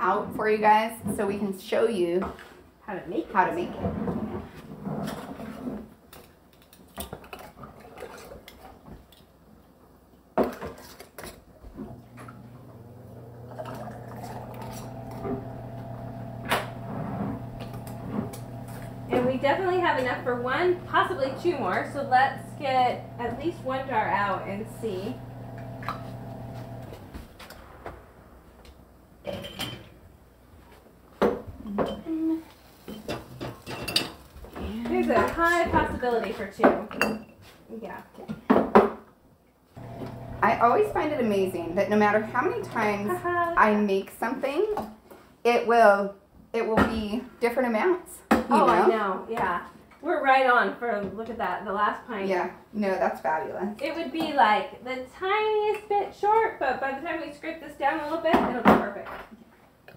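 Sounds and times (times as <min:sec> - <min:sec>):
steady low hum: 0:12.1 - 0:27.4, 0:39.8 - 0:43.3.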